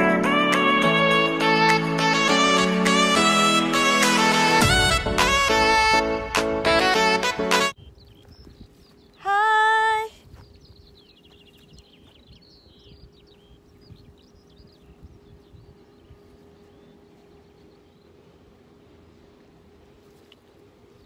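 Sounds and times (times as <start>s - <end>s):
faint steady hum: 7.7s - 21.0s.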